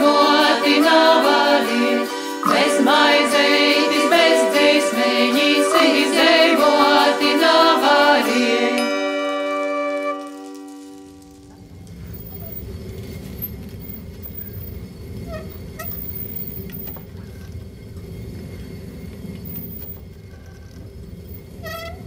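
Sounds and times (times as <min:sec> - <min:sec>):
steady low rumble: 0:11.1 - 0:21.6.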